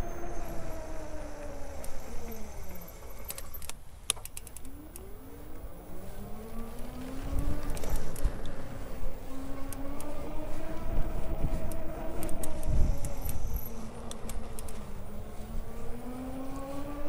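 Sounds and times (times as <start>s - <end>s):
low wind rumble: 0.0s - 17.0s
road traffic passing: 0.0s - 17.0s
sharp rattling clicks: 1.4s - 5.7s, 11.6s - 14.9s.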